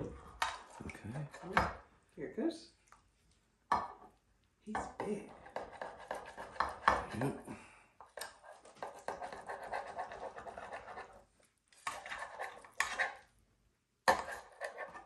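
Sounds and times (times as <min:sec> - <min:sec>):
knife scraping glass dish: 0:05.3 - 0:07.2, 0:08.2 - 0:11.2, 0:11.8 - 0:13.2, 0:14.1 - 0:15.0.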